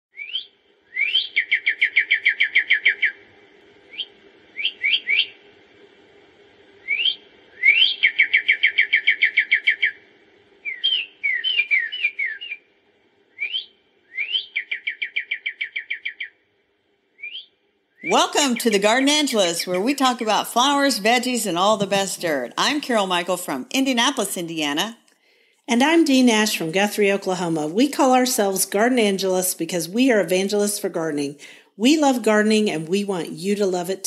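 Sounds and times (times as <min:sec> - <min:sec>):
songbird singing: 0:00.1 - 0:03.3, 0:03.9 - 0:05.4, 0:06.8 - 0:10.0, 0:10.6 - 0:12.7, 0:13.3 - 0:16.4, 0:17.2 - 0:23.4.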